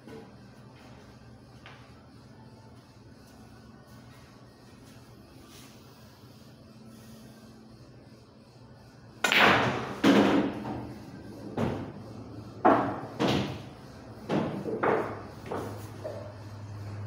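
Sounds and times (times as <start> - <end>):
pool balls cracking and knocking: 12.6 - 15.8.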